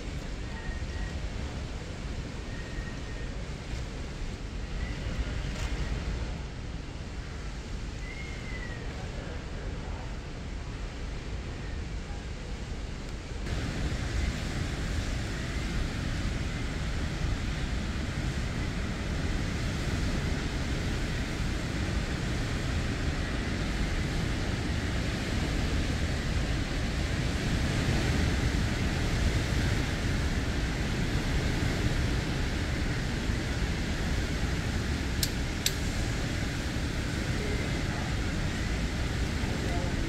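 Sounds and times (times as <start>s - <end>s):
strong wind: 0.0s - 40.0s
heavy rain pouring: 13.4s - 40.0s.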